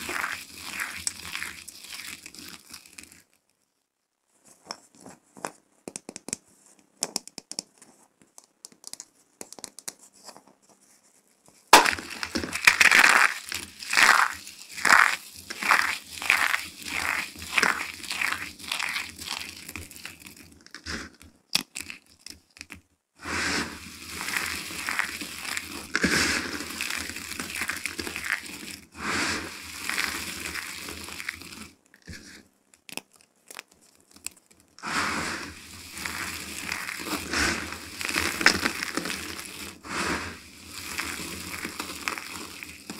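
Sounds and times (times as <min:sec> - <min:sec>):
hands crunching dry soap chips: 0:00.0 - 0:03.4, 0:11.7 - 0:22.8, 0:23.6 - 0:42.9.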